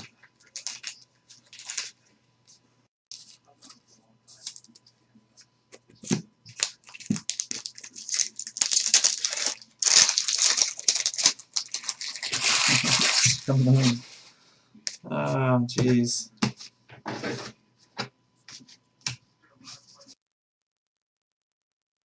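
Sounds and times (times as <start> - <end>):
foil wrapper crinkling: 0.0 - 2.0, 6.5 - 13.6.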